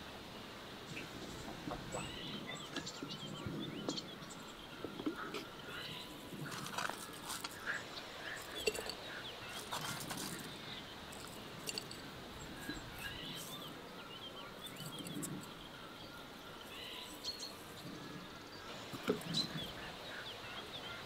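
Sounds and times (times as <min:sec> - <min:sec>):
small birds chirping: 0:00.9 - 0:21.0
light ticks on glass teapot: 0:11.2 - 0:12.0.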